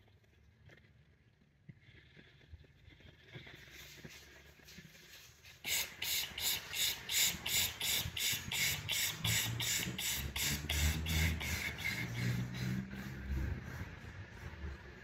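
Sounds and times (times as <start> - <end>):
hissing sips of air: 3.7 - 14.7.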